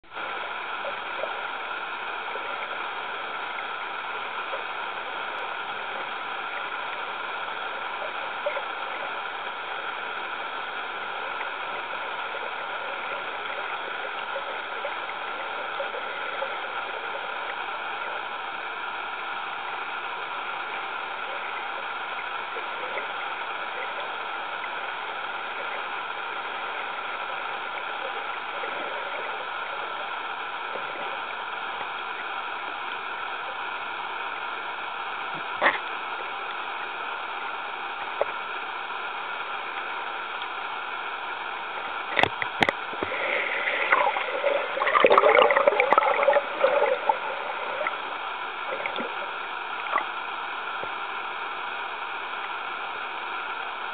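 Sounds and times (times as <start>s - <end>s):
underwater rushing hiss: 40.7s - 53.1s
faint clicks: 42.1s - 47.0s.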